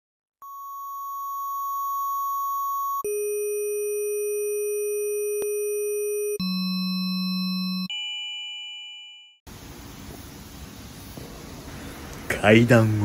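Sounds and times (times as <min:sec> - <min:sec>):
synthesized held electronic tones: 0:00.4 - 0:08.0.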